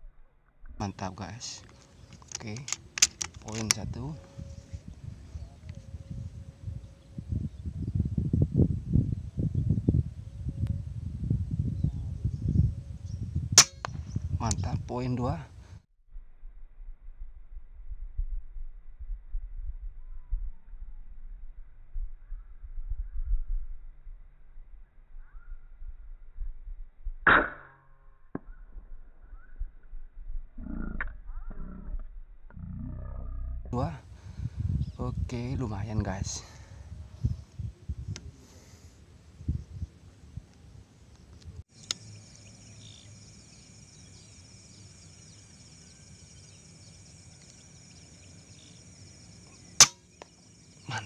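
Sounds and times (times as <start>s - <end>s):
air rifle shot: 13.6s - 14.1s, 49.8s - 50.1s
high-pitched insect chorus: 41.7s - 51.0s.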